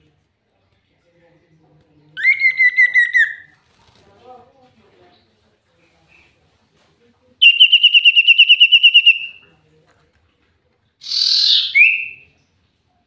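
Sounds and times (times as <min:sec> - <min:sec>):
bird harsh rasp: 0:11.0 - 0:12.0
bird trilling: 0:11.0 - 0:12.2.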